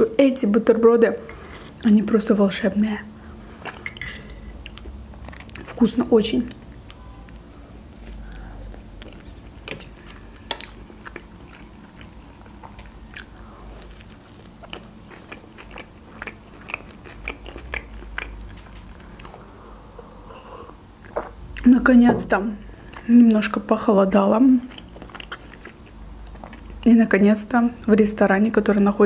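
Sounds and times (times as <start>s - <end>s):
biting and chewing sandwich: 7.9s - 19.4s, 24.7s - 26.8s.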